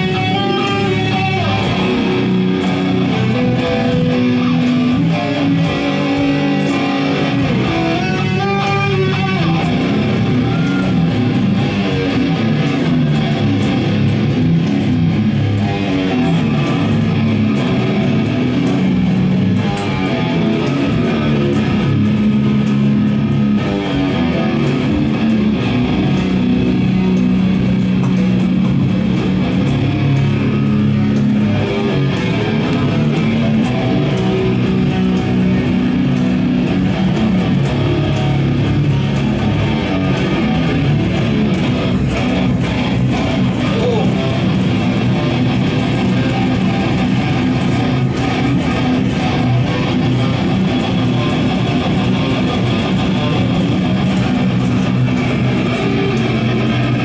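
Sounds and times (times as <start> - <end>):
electric guitars playing: 0.0 - 57.0.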